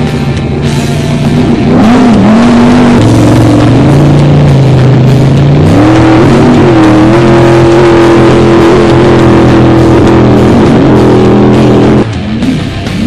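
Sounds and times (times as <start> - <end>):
boat engine revving high: 0.0 - 13.0.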